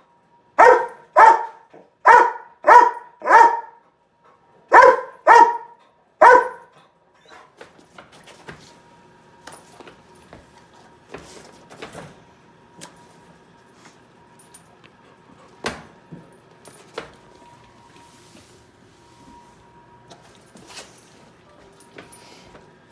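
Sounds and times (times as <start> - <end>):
dog barking: 0.6 - 3.8, 4.7 - 6.7.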